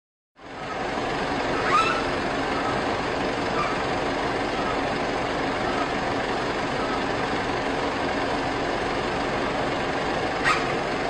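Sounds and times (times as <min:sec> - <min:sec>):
vehicle engines idling: 0:00.4 - 0:11.0
high rising squeak: 0:01.6 - 0:02.1, 0:10.4 - 0:10.8.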